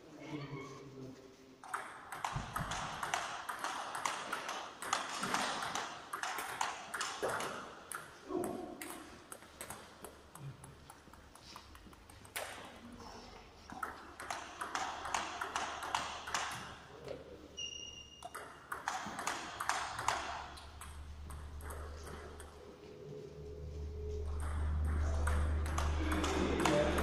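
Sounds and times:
table tennis ball clicking: 1.6s - 12.7s, 13.7s - 16.7s, 18.1s - 22.6s, 24.3s - 27.0s.

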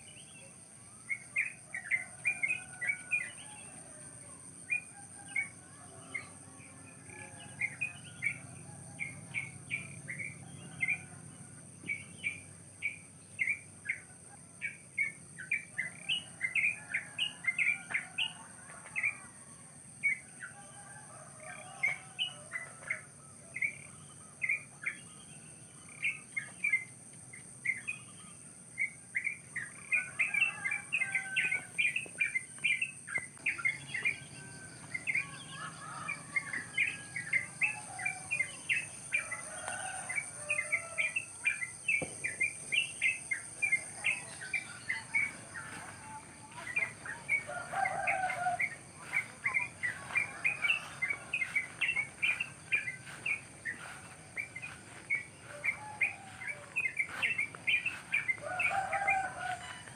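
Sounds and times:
birds chirping: 0.0s - 19.4s, 20.0s - 59.9s
birds chattering: 27.6s - 59.9s.

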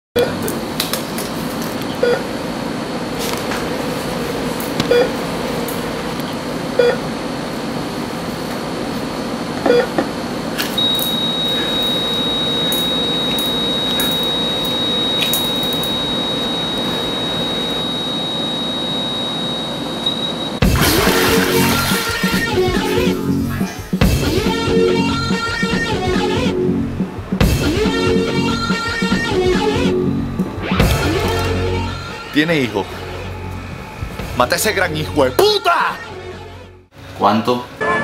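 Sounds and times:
heart monitor beeps: 9.7s - 9.9s, 10.8s - 20.6s
high flatline tone: 10.8s - 36.9s.

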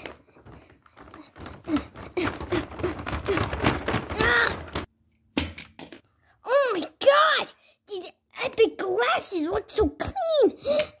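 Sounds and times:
tissue paper rustling: 0.0s - 4.9s.

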